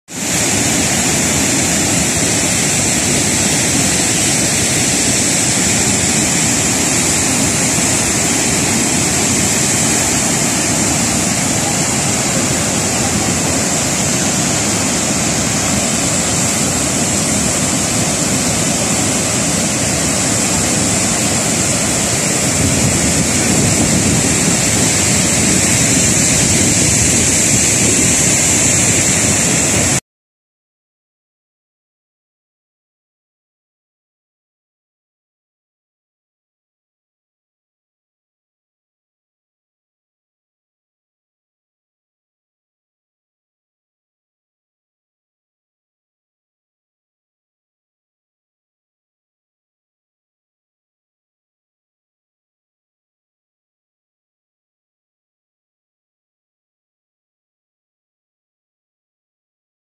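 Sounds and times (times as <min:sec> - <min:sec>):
waterfall rushing: 0:00.1 - 0:30.0.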